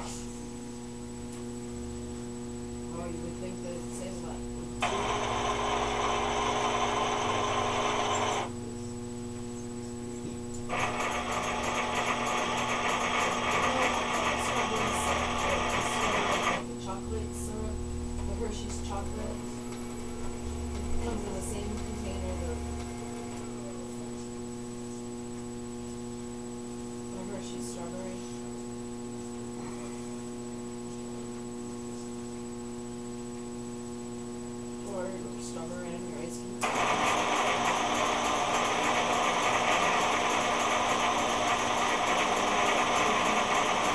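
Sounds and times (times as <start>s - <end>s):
electrical hum: 0.0s - 43.9s
lamp motors whirring: 4.7s - 9.7s, 10.4s - 16.9s, 17.9s - 25.1s, 36.6s - 43.9s.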